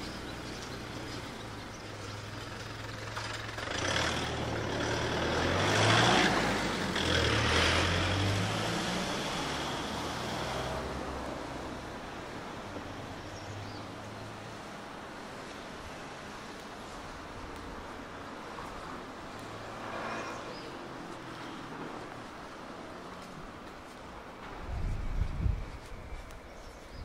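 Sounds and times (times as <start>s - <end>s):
vehicle driving past: 0.4s - 12.1s, 18.7s - 23.1s.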